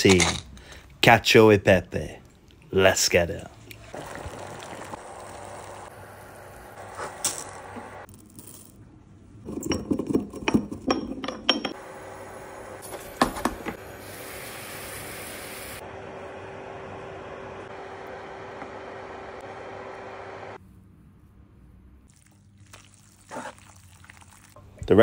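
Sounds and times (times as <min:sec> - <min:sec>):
boiling water hissing: 0:03.8 - 0:08.1, 0:11.8 - 0:15.8, 0:22.1 - 0:24.6.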